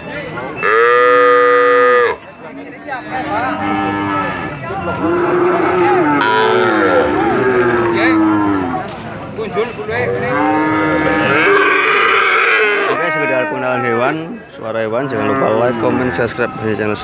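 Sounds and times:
young cattle mooing: 3.1s - 8.9s, 10.1s - 14.2s.

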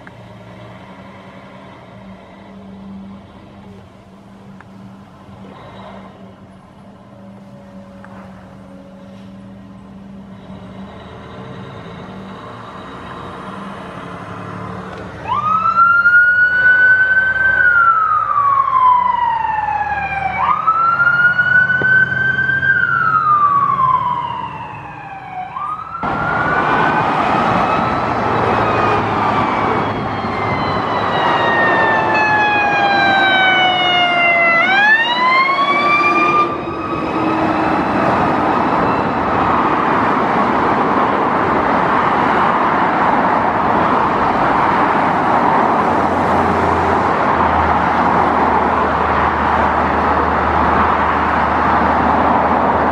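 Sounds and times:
fire engine engine running: 0.0s - 52.9s
wailing siren: 14.5s - 40.9s.

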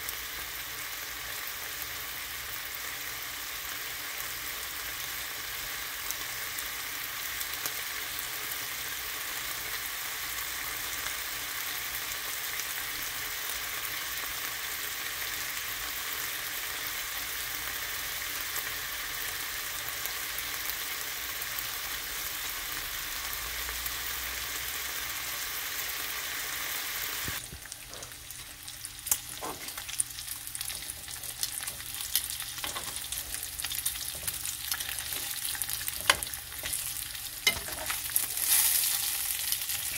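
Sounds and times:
bacon sizzling in a pan: 0.0s - 39.9s
tongs clicking on pan: 30.6s - 38.6s.

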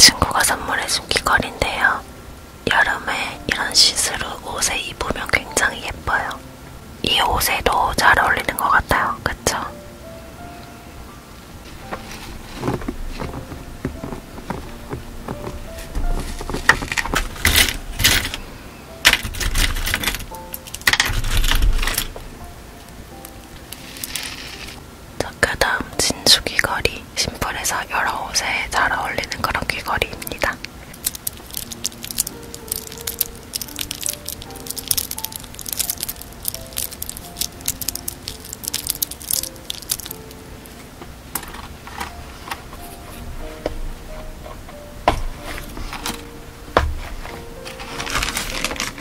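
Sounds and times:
soft background music: 0.0s - 49.0s
beads and metal hooks clicking: 19.0s - 22.1s, 23.7s - 24.8s, 30.8s - 40.4s, 47.8s - 49.0s
earrings clinking and jingling: 19.0s - 22.2s, 30.3s - 40.4s.

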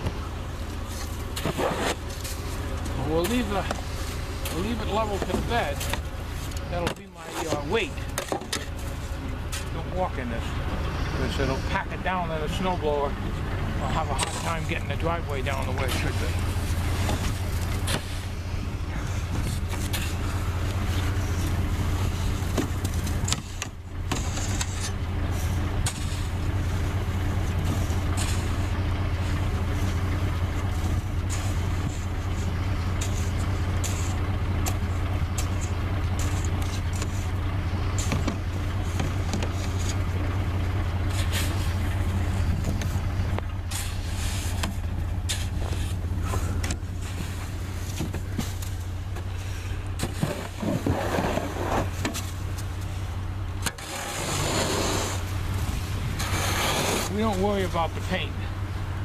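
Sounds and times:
rake scraping snow off roof: 0.0s - 10.5s, 13.8s - 58.3s
vehicle engine idling: 0.0s - 59.0s.

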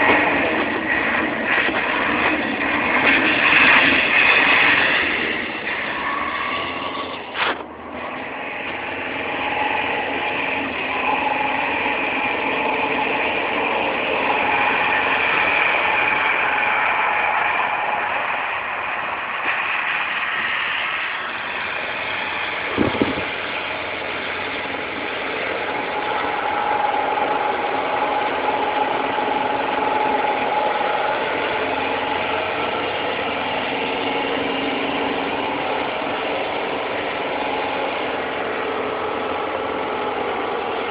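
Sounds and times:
diesel truck engine revving: 0.0s - 40.9s.

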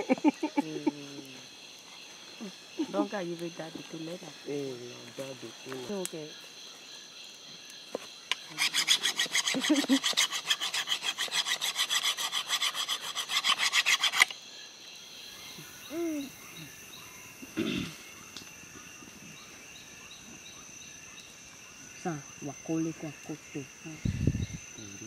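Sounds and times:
insects droning: 0.0s - 25.0s
wooden stick being scraped: 8.3s - 14.3s.

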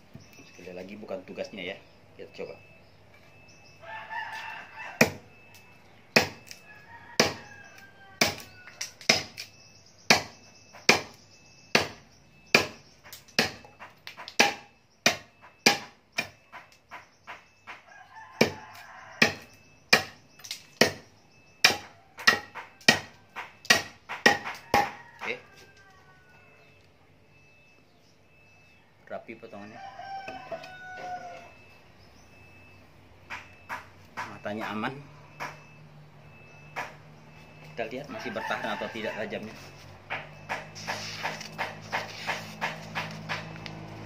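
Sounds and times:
blade chopping into wooden post: 6.2s - 6.6s, 8.2s - 16.4s, 19.2s - 25.0s.

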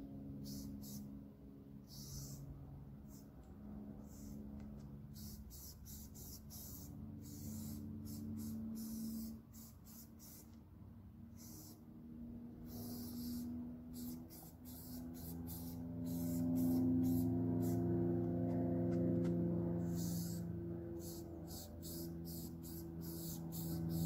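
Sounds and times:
spray paint can hissing: 0.4s - 1.0s, 1.9s - 2.4s, 4.1s - 4.4s, 5.2s - 10.6s, 11.4s - 11.8s, 12.7s - 17.8s, 20.0s - 20.4s, 21.0s - 24.0s.

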